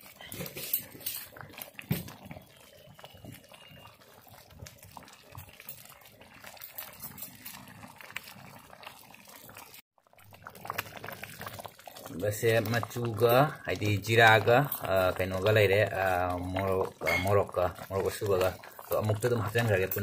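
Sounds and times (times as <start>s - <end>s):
porridge bubbling in pot: 0.0s - 20.0s.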